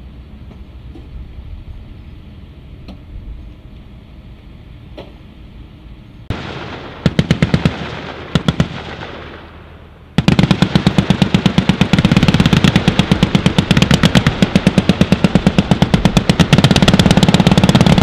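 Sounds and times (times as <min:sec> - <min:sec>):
heavy machine gun fire: 0:06.3 - 0:18.0.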